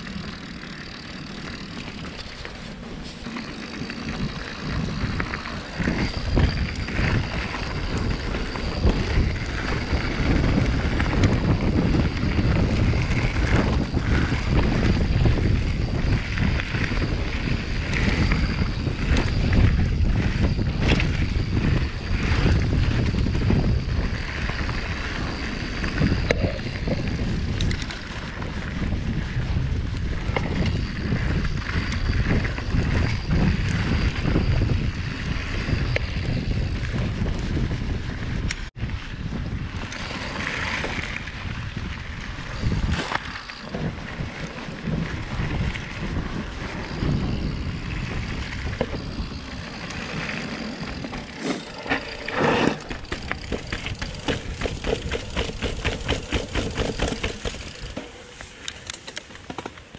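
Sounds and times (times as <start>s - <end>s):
wind buffeting microphone: 0.0s - 59.5s
tyre and trail noise: 0.0s - 59.9s
bike knocks and rattles: 48.6s - 59.9s.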